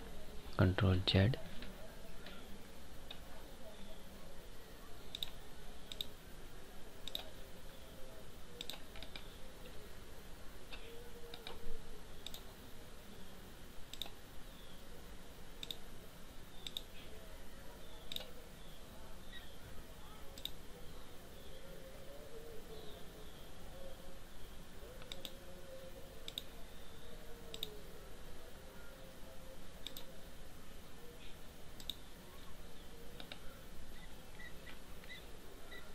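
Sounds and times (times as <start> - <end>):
computer mouse clicking: 5.1 - 6.2, 7.0 - 7.3, 8.6 - 9.8, 10.7 - 11.6, 12.2 - 12.5, 13.9 - 14.2, 15.6 - 15.8, 16.6 - 16.9, 18.0 - 18.3, 20.4 - 20.6, 25.0 - 25.4, 26.2 - 26.5, 27.5 - 27.8, 29.8 - 30.1, 31.8 - 32.0, 33.2 - 33.4, 34.0 - 35.2.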